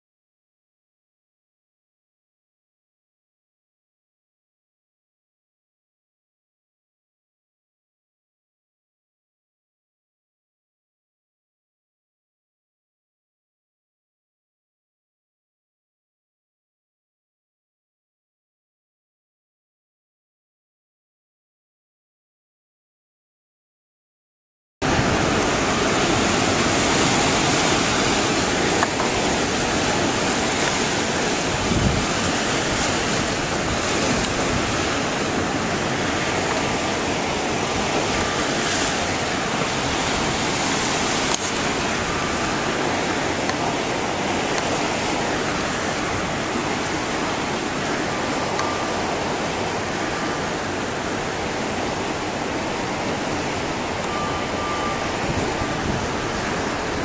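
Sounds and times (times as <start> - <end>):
water rushing and churning: 24.8 - 57.0
wind on microphone: 24.8 - 57.0.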